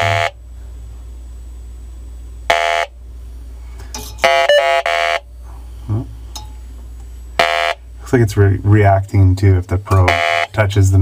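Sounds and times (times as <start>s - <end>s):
leak detector alarm buzzer: 0.0s - 0.4s, 2.5s - 3.0s, 4.2s - 5.3s, 7.4s - 7.9s, 9.9s - 10.6s.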